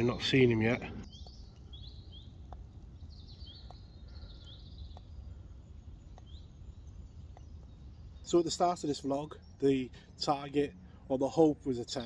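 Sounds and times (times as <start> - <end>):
low background rumble: 0.0 - 12.0
small birds chirping: 0.0 - 12.0
faint ticking: 1.0 - 6.4.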